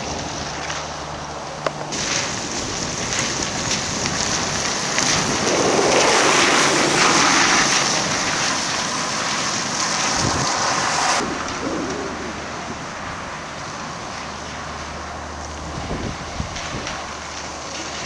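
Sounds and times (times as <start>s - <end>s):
bus passing on wet road: 0.0s - 18.0s
wind buffeting microphone: 1.9s - 14.4s, 15.6s - 17.2s.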